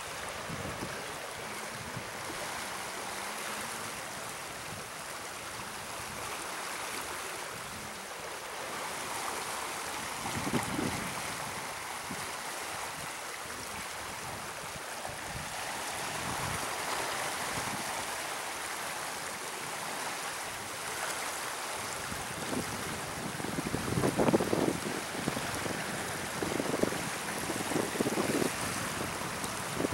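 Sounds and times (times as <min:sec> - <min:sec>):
water rushing and churning: 0:00.0 - 0:29.9
wind buffeting microphone: 0:10.1 - 0:12.3, 0:22.0 - 0:29.9.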